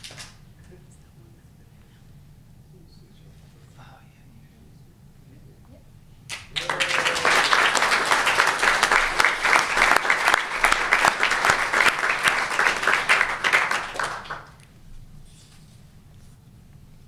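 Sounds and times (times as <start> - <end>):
audience applauding: 6.3 - 14.7.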